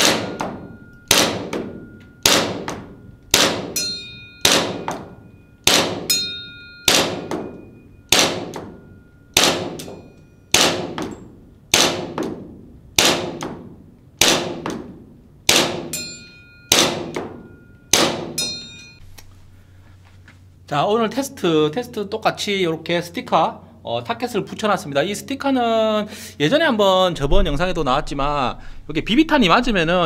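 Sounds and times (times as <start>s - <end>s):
airsoft pistol shots: 0.0s - 3.8s, 4.4s - 5.1s, 5.7s - 6.1s, 6.9s - 7.5s, 8.1s - 8.8s, 9.4s - 14.9s, 15.5s - 16.0s, 16.7s - 18.4s
bb ringing on steel target: 0.0s - 11.4s, 15.5s - 19.0s.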